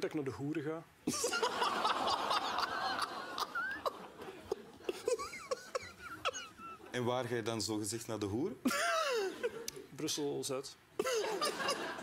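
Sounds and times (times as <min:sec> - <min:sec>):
studio audience laughing: 0:01.1 - 0:06.9, 0:11.1 - 0:12.0.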